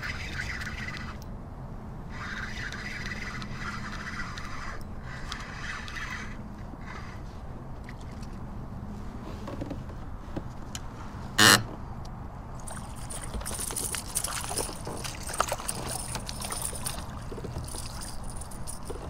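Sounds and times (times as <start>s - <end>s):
fish thrashing and splashing: 12.6s - 19.0s
tackle clicking and rattling: 12.6s - 19.0s.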